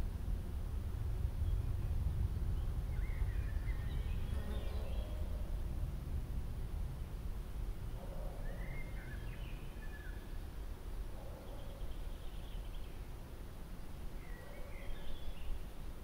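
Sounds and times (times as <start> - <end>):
low background rumble: 0.0 - 8.2.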